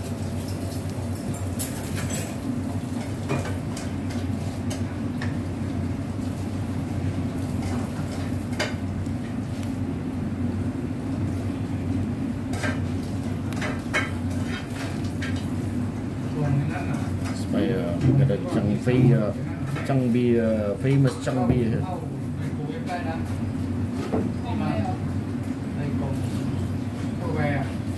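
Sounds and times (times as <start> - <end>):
dishes and cutlery clinking: 0.4 - 4.8.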